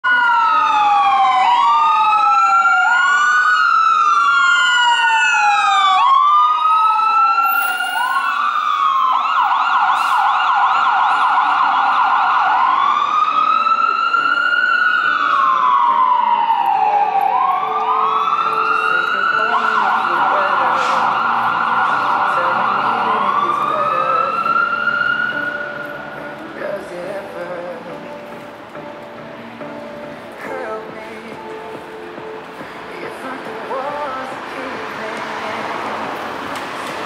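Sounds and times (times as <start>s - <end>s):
fire engine siren: 0.0s - 28.2s.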